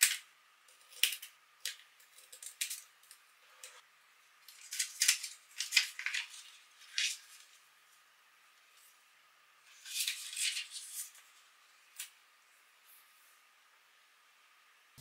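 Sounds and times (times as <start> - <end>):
paper crinkling and rustling: 4.5 - 7.6, 9.7 - 11.4.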